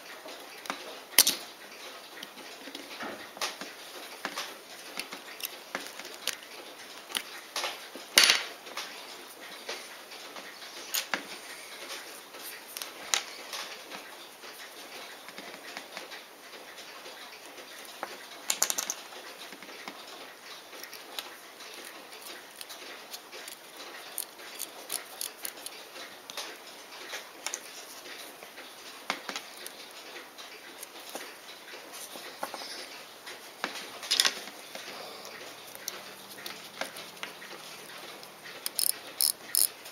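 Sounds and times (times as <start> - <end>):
tweezers clicking on watch parts: 38.6 - 39.7.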